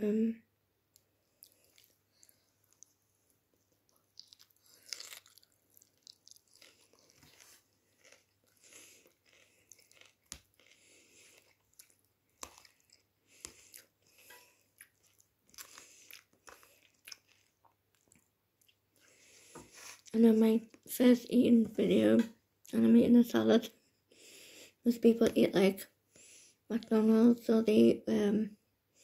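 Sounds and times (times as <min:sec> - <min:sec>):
chewing lettuce crunches: 0:03.9 - 0:14.2, 0:14.8 - 0:18.8.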